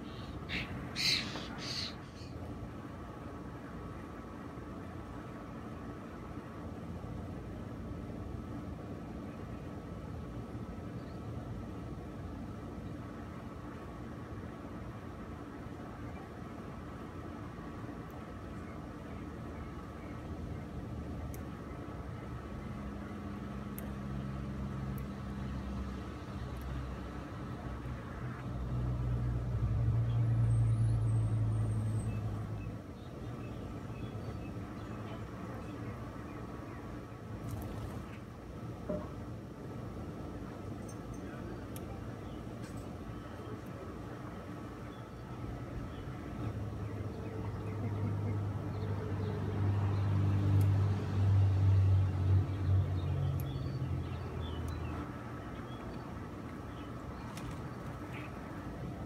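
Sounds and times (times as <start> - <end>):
vehicle passing by: 47.4 - 55.4.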